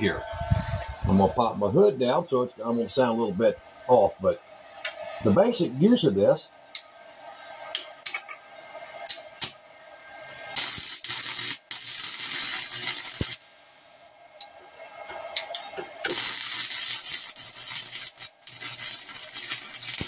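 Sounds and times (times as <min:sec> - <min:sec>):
welding arc hissing crackle: 0:00.0 - 0:20.0.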